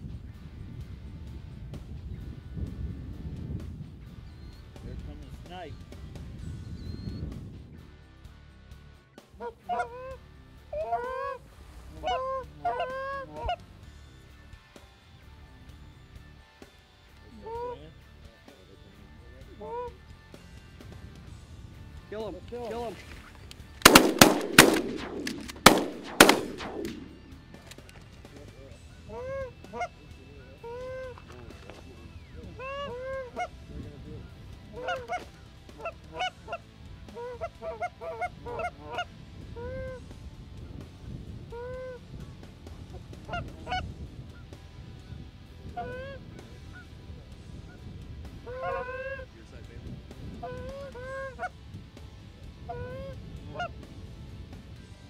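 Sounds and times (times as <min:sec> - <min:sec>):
goose honking: 0:09.4 - 0:10.2, 0:10.8 - 0:13.6, 0:32.6 - 0:33.6, 0:34.7 - 0:40.0, 0:48.5 - 0:49.3, 0:50.4 - 0:51.5.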